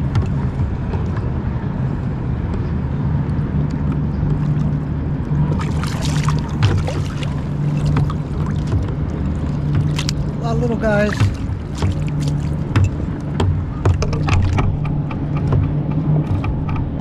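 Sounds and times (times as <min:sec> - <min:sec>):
boat motor humming: 0:00.0 - 0:17.0.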